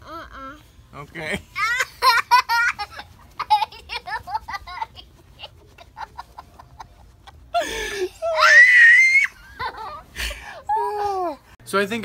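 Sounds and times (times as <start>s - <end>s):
boy giggling: 1.6s - 11.4s
child squealing: 8.2s - 9.4s.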